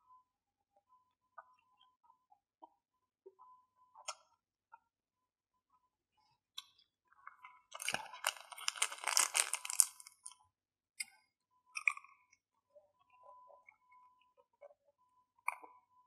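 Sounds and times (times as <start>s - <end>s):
plastic wrapper crinkling: 7.7s - 10.3s
biting crisp chocolate coating: 7.7s - 10.4s.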